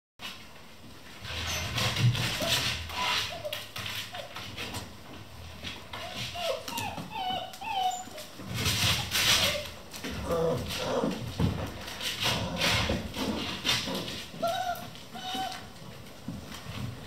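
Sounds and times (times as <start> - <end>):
puppies scuffling: 0.2 - 17.0
puppies whining and yelping: 2.4 - 4.5, 5.9 - 11.1, 13.9 - 15.8.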